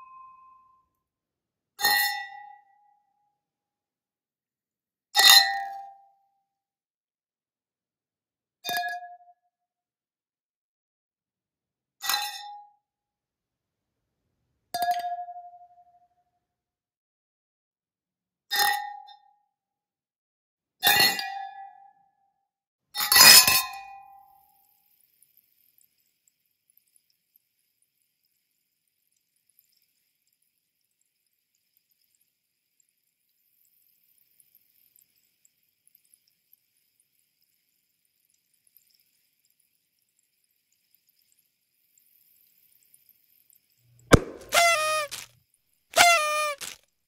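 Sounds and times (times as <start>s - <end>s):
champagne glasses clinking: 44.1s - 45.2s.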